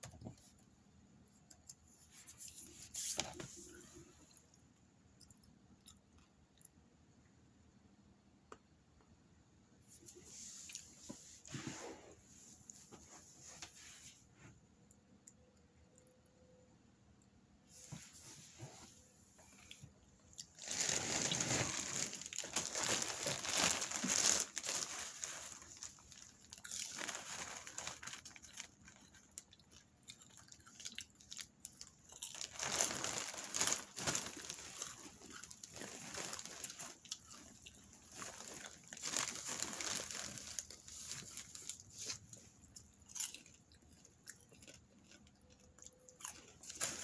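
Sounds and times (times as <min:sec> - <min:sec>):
popcorn being chewed: 0:01.4 - 0:07.0, 0:19.4 - 0:47.0
plastic bag crinkling: 0:20.4 - 0:42.8, 0:46.3 - 0:47.0.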